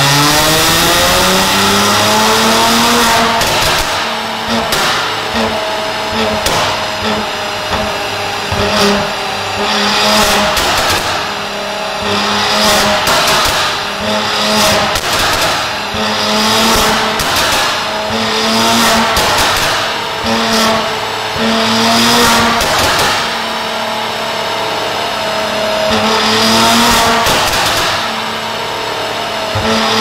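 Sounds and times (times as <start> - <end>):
engine revving on a dyno: 0.0 - 30.0
exhaust pops and bangs: 2.8 - 9.2, 10.1 - 11.4, 12.1 - 17.9, 18.8 - 20.7, 22.2 - 23.4, 26.7 - 28.2.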